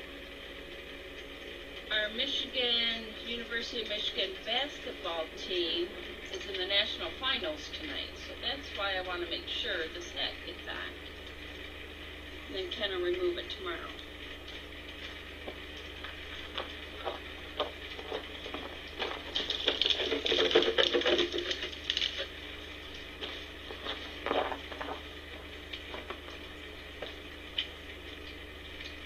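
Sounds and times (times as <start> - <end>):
steady low hum: 0.0 - 29.0
footsteps crunching on wood chips: 15.0 - 22.3, 23.1 - 26.4.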